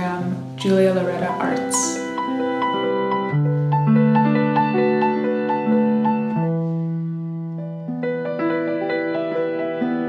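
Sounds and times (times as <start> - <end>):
solo piano music: 0.0 - 10.0.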